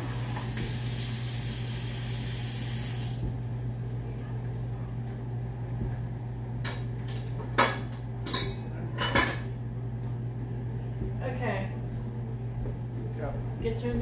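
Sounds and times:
steady low hum: 0.0s - 14.0s
dishes clinking in a rack: 6.6s - 9.6s.

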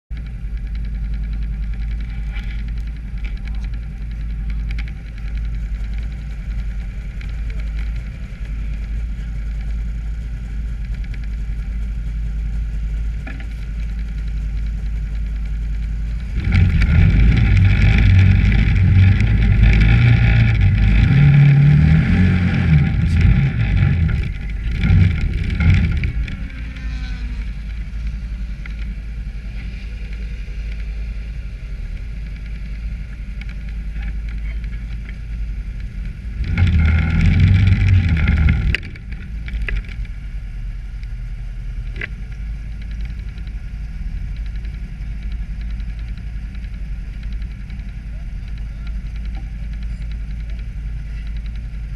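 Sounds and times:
small engine running and revving: 0.2s - 40.2s, 40.9s - 51.9s.

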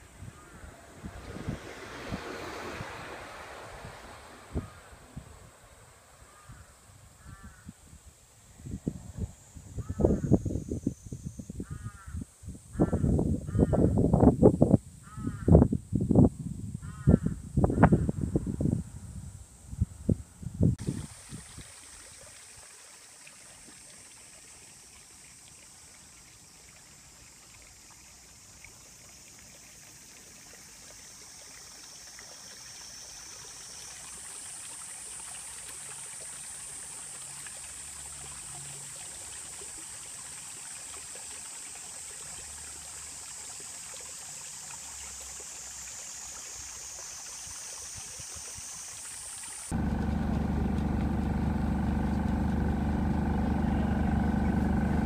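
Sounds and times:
high-pitched hiss: 0.0s - 12.8s, 20.7s - 49.8s
faint low rumble: 49.7s - 55.0s.

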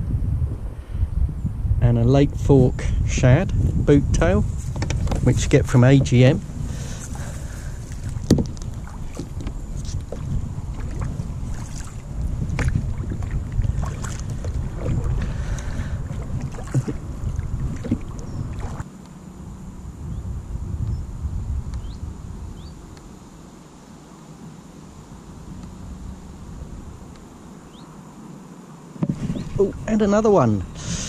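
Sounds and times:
wind rumble on microphone: 0.0s - 23.5s, 24.9s - 27.8s, 29.0s - 31.0s
paddle knocks: 4.7s - 6.2s, 7.9s - 11.9s, 12.5s - 15.4s, 16.1s - 18.8s, 29.0s - 29.6s
paddle splashing in water: 6.0s - 18.8s.

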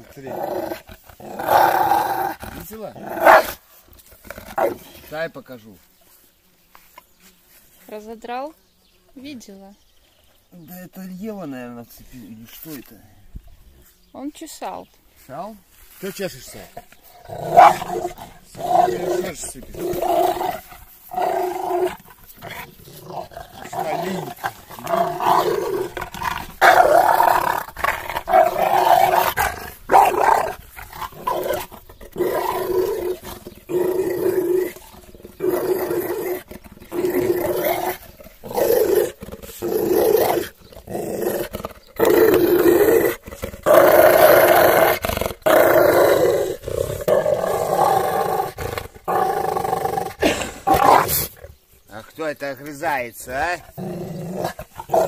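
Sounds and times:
dog growling in play: 0.0s - 5.0s, 16.6s - 51.6s, 53.6s - 55.0s.

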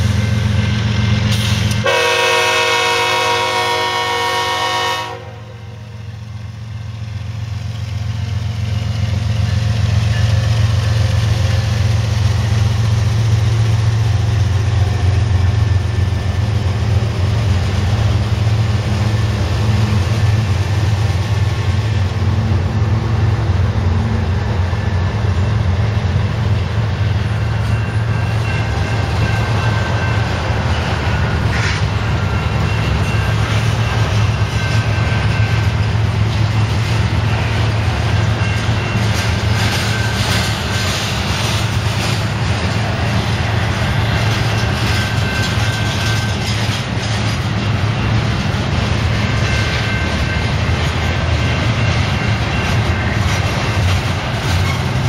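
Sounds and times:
freight train rumbling past: 0.0s - 55.0s
train horn blast: 1.7s - 6.0s.

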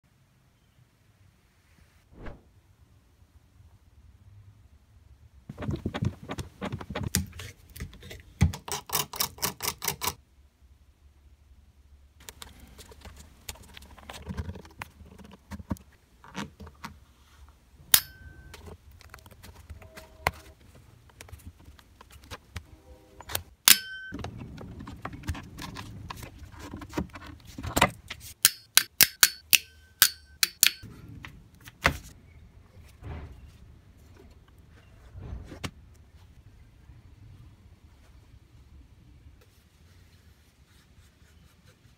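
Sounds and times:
metal tool prying with clicks: 23.7s - 24.2s, 28.4s - 30.9s.

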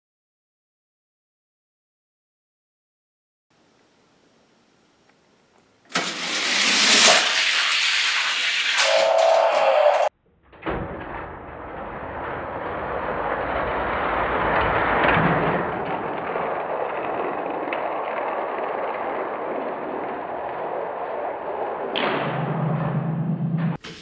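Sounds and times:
toy cars rolling down plastic track: 5.9s - 10.1s, 11.6s - 22.0s.

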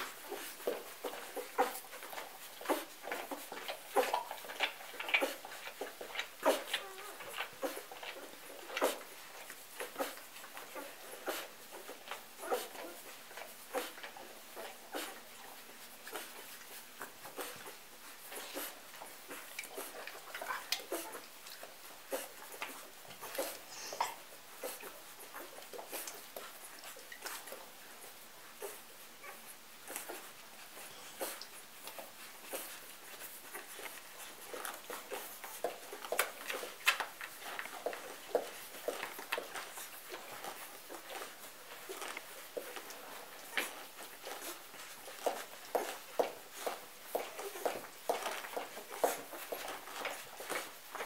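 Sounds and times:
puppies squeaking and grunting: 0.0s - 51.0s
puppies suckling: 0.0s - 51.0s.

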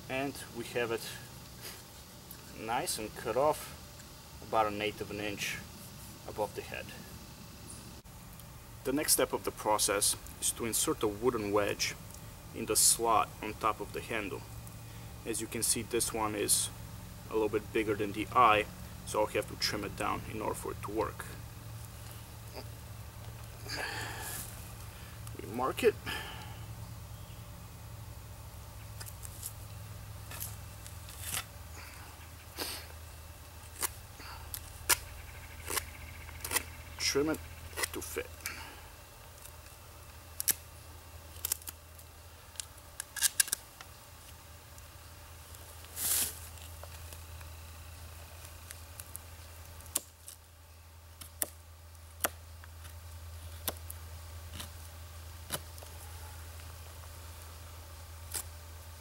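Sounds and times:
steady low hum: 0.0s - 59.0s
knife cutting wood: 33.6s - 36.7s, 37.7s - 38.0s
knife shaving wood: 33.6s - 37.0s, 37.7s - 38.6s, 39.3s - 40.6s, 52.2s - 56.7s, 58.2s - 58.6s.

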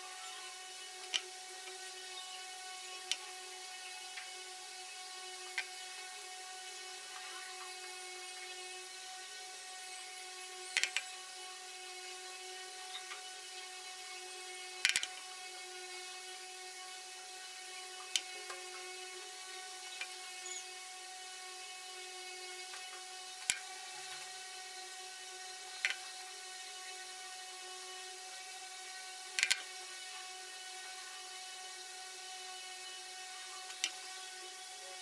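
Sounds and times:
faint hum of held tones: 0.0s - 35.0s.

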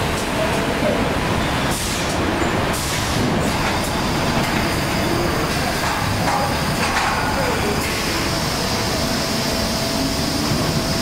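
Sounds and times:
packing machinery running: 0.0s - 11.0s.

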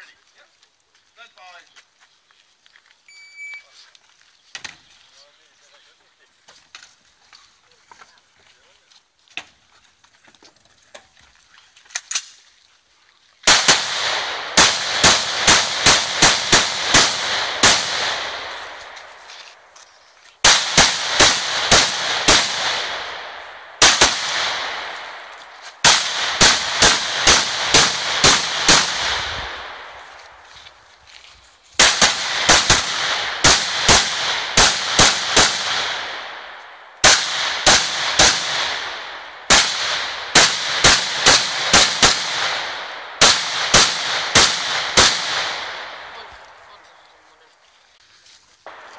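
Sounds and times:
rifle gunshots echoing: 13.5s - 19.3s, 20.4s - 30.1s, 31.8s - 46.6s.

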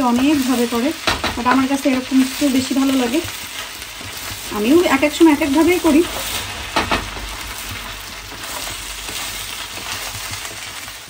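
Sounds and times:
rice sizzling in a wok: 0.0s - 11.0s
spatula scraping a wok: 0.2s - 11.0s.

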